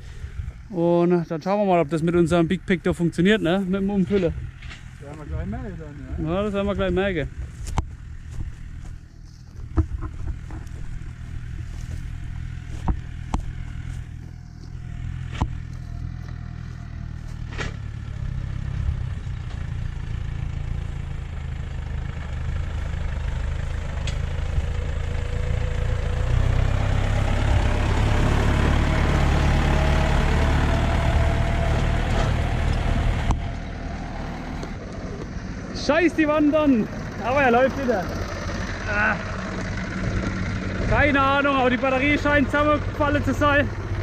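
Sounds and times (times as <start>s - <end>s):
tractor engine running: 0.0s - 44.0s.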